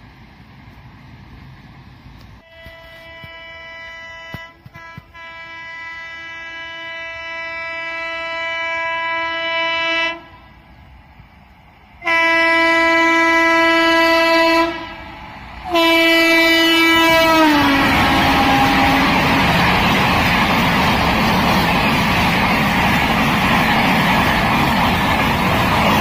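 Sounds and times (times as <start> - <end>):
rush of passing train: 0.0 - 26.0
locomotive horn blasts: 2.4 - 10.4, 12.0 - 15.0, 15.7 - 19.4.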